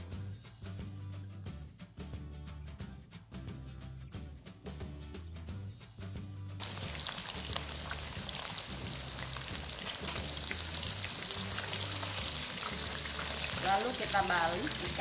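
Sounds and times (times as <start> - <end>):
background music: 0.0 - 15.0
fish sizzling in hot oil: 6.6 - 15.0.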